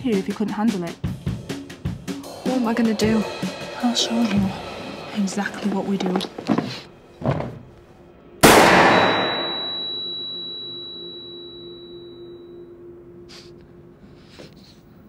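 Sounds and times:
heavy hit with echoing tail: 0:02.1 - 0:05.3, 0:08.4 - 0:09.8
high steady ringing tone: 0:08.9 - 0:13.2.

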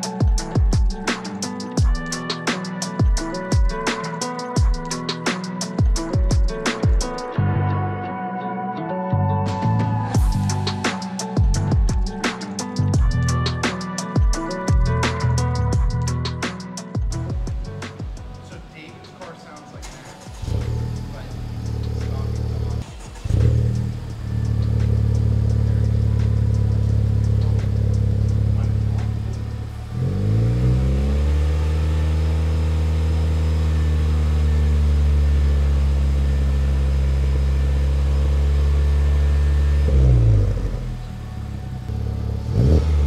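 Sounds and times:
car engine revving and idling: 0:09.5 - 0:43.0.

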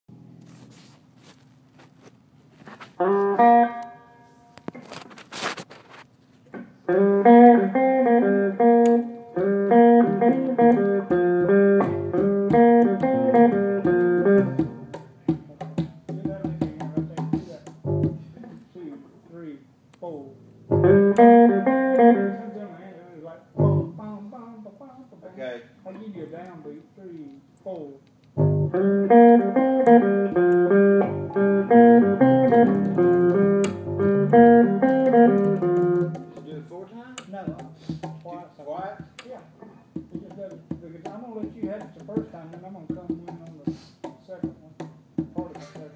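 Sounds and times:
plucked string melody: 0:03.0 - 0:04.7, 0:06.9 - 0:15.2, 0:17.8 - 0:18.2, 0:20.6 - 0:22.6, 0:23.6 - 0:24.0, 0:28.4 - 0:36.6.

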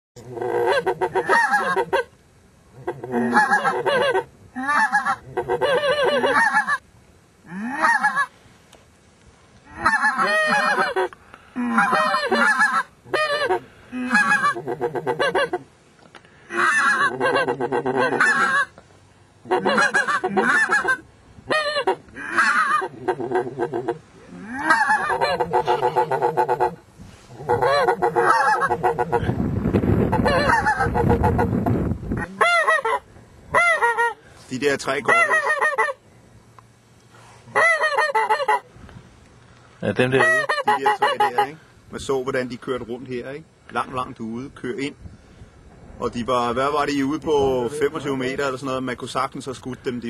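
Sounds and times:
goose honking: 0:00.4 - 0:02.1, 0:02.8 - 0:06.8, 0:09.7 - 0:15.6, 0:16.5 - 0:18.8, 0:19.4 - 0:29.3, 0:30.0 - 0:31.5, 0:32.2 - 0:34.2, 0:37.5 - 0:38.7, 0:40.1 - 0:41.6.

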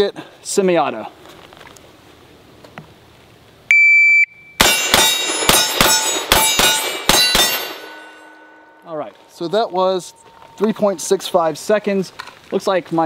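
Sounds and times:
shot timer beep: 0:03.7 - 0:04.6
steel targets ringing: 0:04.5 - 0:10.2
rifle shots: 0:04.6 - 0:08.1.

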